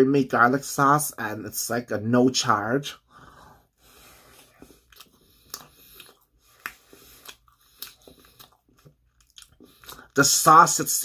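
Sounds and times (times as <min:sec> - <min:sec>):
person chewing pizza: 0:03.8 - 0:10.4.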